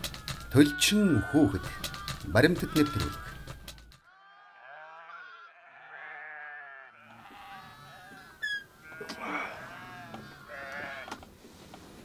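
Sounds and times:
young livestock bleating: 5.2 - 11.2.

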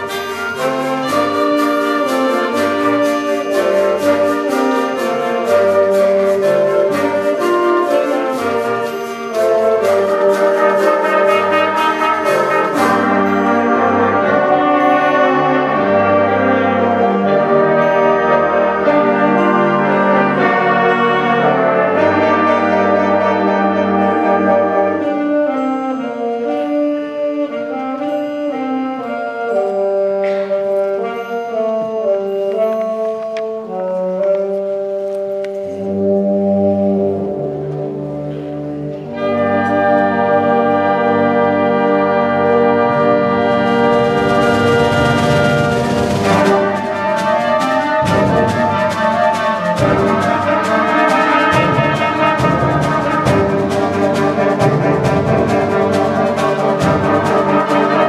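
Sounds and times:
percussion beat: 0.0 - 23.2, 43.0 - 58.0
wind ensemble playing chords: 0.0 - 58.0.

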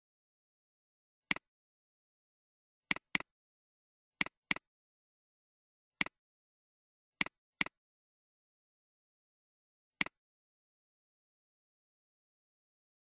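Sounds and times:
computer mouse clicks: 2.9 - 3.3, 4.2 - 4.7, 7.2 - 7.8, 10.0 - 10.2.

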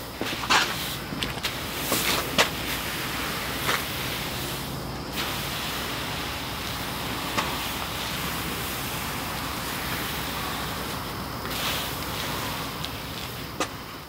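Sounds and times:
grass seed hissing and rustling: 0.0 - 14.0.

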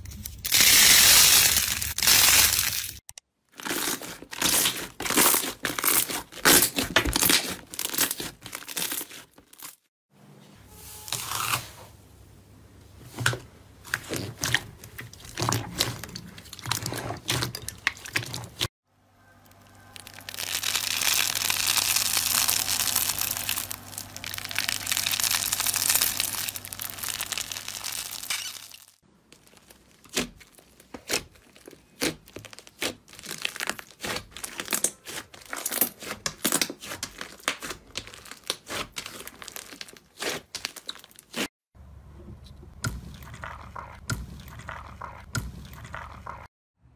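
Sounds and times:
slime crackling and popping: 20.0 - 41.4.

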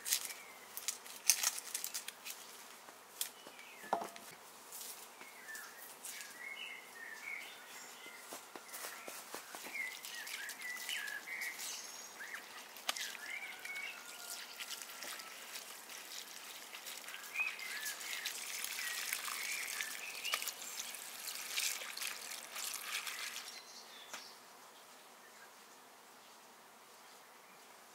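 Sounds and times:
leaves clicking: 0.0 - 3.6, 8.2 - 23.6
birds chirping: 5.2 - 24.4
water trickling into metal bowl: 12.4 - 23.6.

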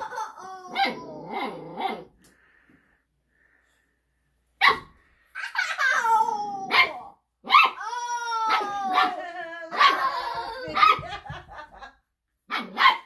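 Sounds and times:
puppy barking and howling: 5.6 - 11.2.

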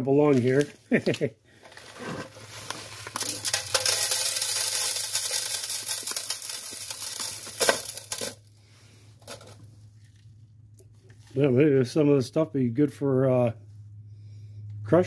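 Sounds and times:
gravel clicking and rattling: 2.5 - 8.4.

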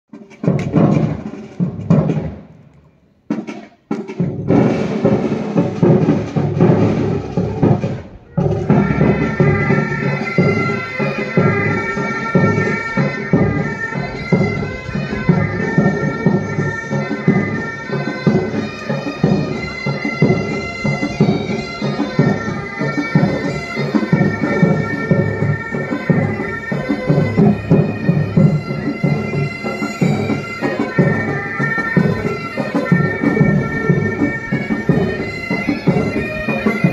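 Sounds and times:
drums playing: 0.1 - 2.6, 3.2 - 36.9
bagpipes playing a tune: 8.4 - 36.9.

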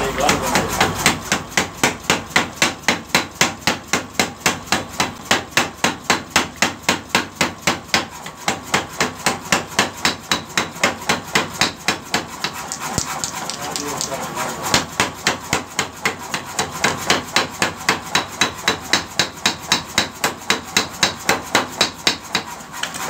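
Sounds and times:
power hammer pounding hot steel: 0.0 - 23.0.

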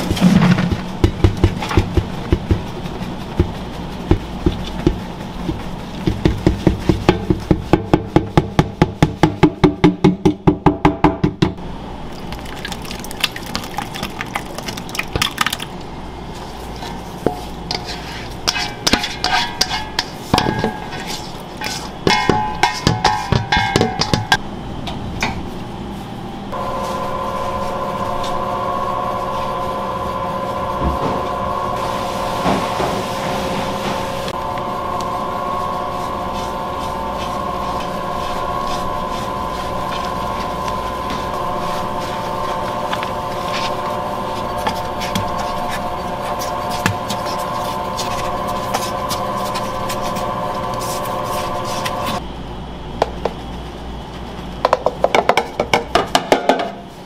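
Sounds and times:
mixer motor whining: 26.6 - 52.2.

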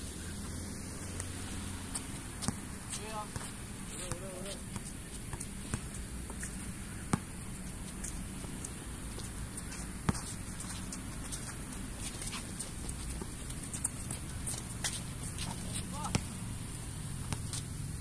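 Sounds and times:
basketball bouncing on concrete: 1.9 - 5.9, 10.0 - 10.8, 13.1 - 16.4, 17.1 - 17.7
footsteps and shoe scuffs: 7.9 - 16.2.

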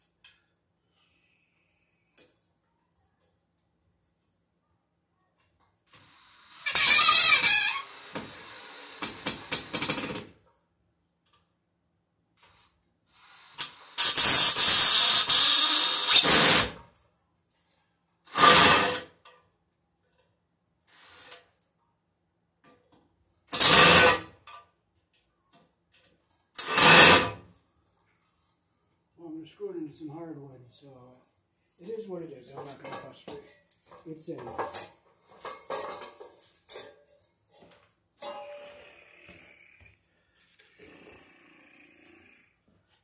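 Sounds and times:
cordless drill driving a screw: 13.5 - 16.7, 26.6 - 27.3.

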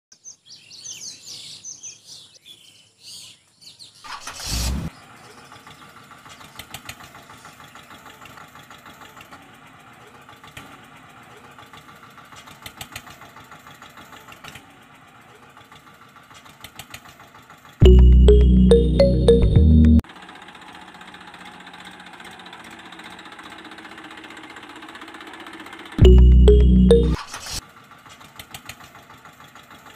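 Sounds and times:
toy tractor engine running: 5.6 - 17.8, 20.1 - 26.0.

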